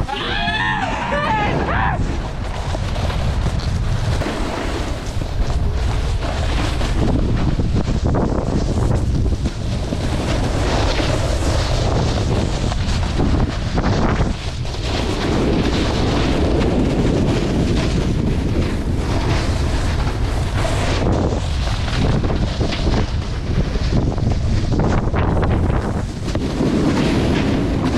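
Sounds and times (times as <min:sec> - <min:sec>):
snowboard scraping over snow: 0:00.0 - 0:27.9
wind rushing over microphone: 0:00.0 - 0:27.9.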